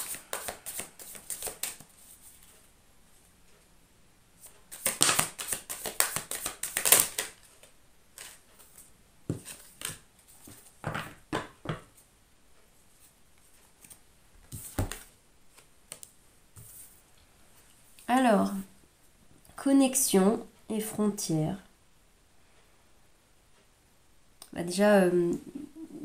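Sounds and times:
cards being shuffled: 0:00.0 - 0:02.6, 0:04.7 - 0:11.2, 0:13.8 - 0:16.8
cards laid on table: 0:13.8 - 0:15.1.

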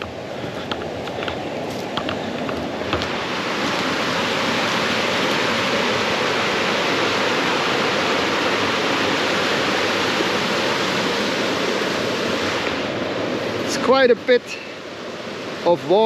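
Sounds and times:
river rushing over waterfall: 0:00.0 - 0:16.0.

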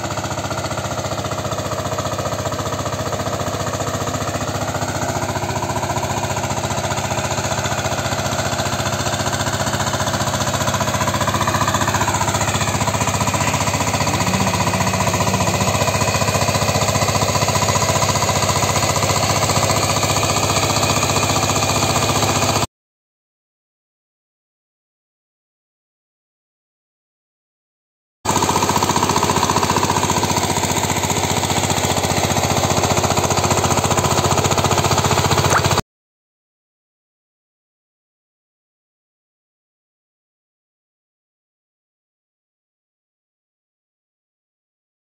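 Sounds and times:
power tiller diesel engine running: 0:00.0 - 0:22.7, 0:28.3 - 0:35.8.

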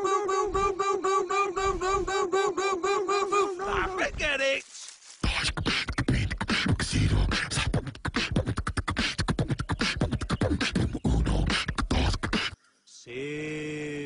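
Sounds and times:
man beatboxing: 0:05.2 - 0:12.6.

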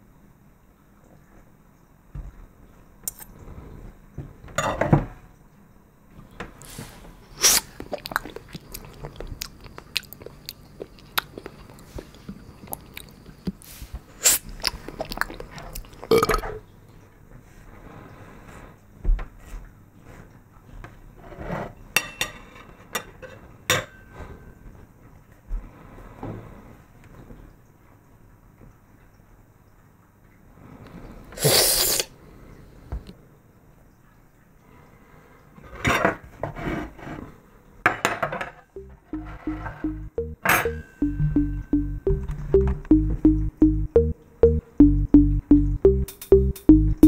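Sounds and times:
chewing and crunching: 0:07.7 - 0:13.6, 0:14.5 - 0:16.2.

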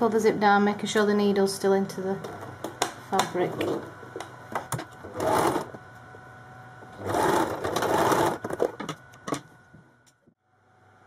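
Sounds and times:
sewing machine stitching: 0:05.0 - 0:05.8, 0:06.9 - 0:08.8.

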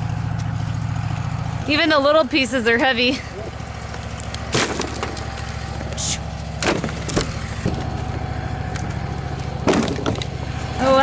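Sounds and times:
engine idling hum: 0:00.0 - 0:11.0
wooden slabs clattering on a pile: 0:04.4 - 0:05.9, 0:06.6 - 0:07.9, 0:09.4 - 0:10.4.

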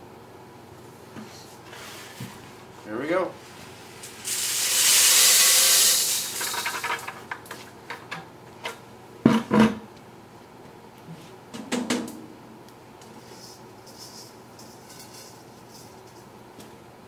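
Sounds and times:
grain pouring into metal bowl: 0:04.0 - 0:07.1.

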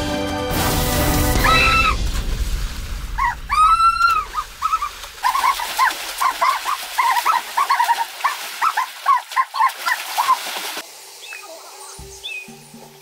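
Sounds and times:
bird calls: 0:11.2 - 0:13.0.

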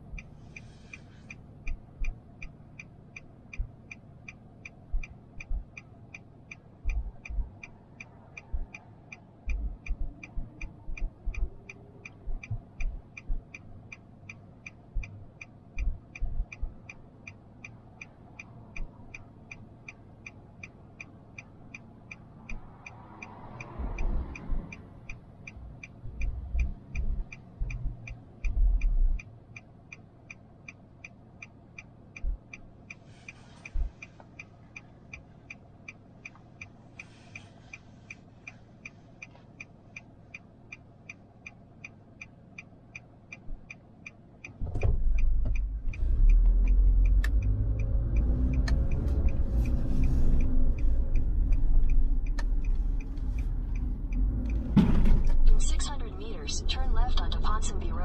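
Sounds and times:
car turn indicator ticking: 0:00.0 - 0:58.0
vehicle rumbling past: 0:22.2 - 0:29.2, 0:44.8 - 0:57.9.

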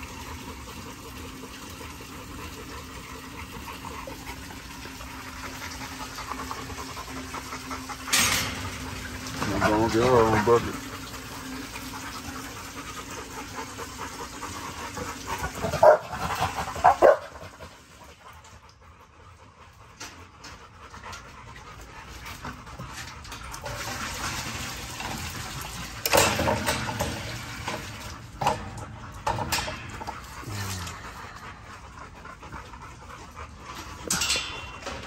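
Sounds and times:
water running into a bucket: 0:00.0 - 0:18.8, 0:21.1 - 0:31.6
dogs panting: 0:00.0 - 0:35.0
dog barks: 0:15.7 - 0:16.2, 0:16.8 - 0:17.4.

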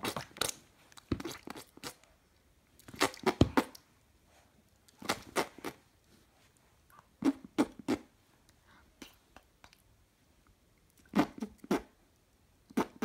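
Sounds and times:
baby mouth clicks and lip smacks: 0:00.0 - 0:02.1, 0:04.8 - 0:05.8, 0:06.9 - 0:09.9.

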